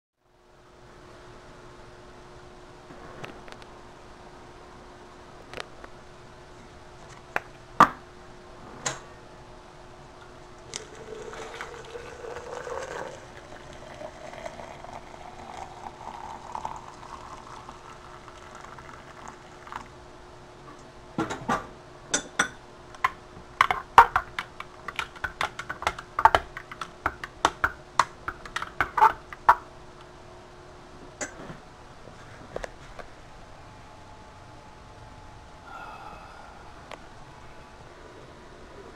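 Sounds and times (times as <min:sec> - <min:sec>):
water pouring into glass: 0:10.7 - 0:19.9.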